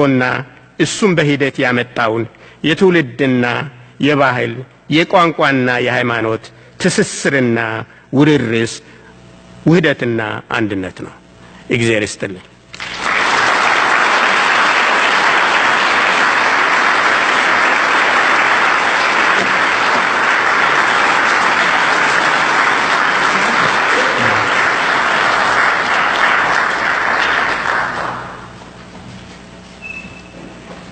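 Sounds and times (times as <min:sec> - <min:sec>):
audience applauding: 0:12.7 - 0:28.6.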